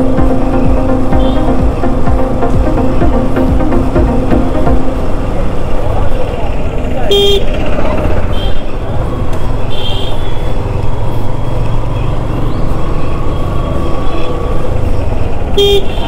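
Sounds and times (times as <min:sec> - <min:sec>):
motorcycle engine rumble: 0:00.0 - 0:16.0
motorcycle horn beeps: 0:01.1 - 0:01.6, 0:07.1 - 0:07.6, 0:08.2 - 0:08.8, 0:15.6 - 0:16.0.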